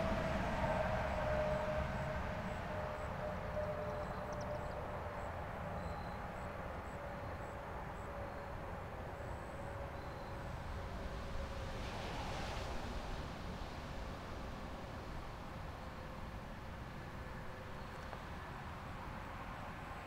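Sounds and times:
distant warning siren: 0:00.0 - 0:11.8.

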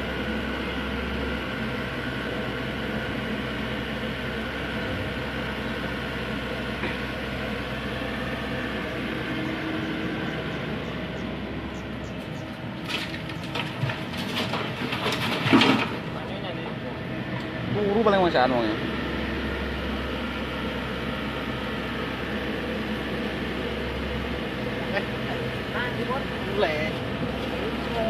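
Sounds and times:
excavator diesel engine running: 0:00.0 - 0:28.0
knocks and clattering: 0:12.9 - 0:16.0.

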